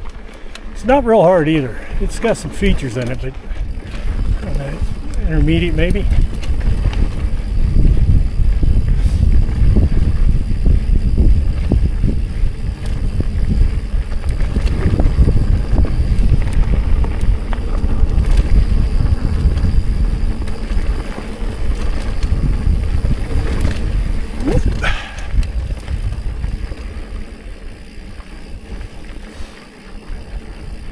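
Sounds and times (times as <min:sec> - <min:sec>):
bike rattling over rocks: 0:00.0 - 0:30.9
wind buffeting microphone: 0:00.0 - 0:30.9.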